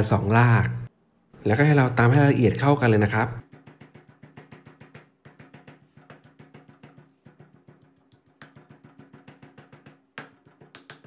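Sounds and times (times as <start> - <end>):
pestle pounding in stone mortar: 3.4 - 11.0.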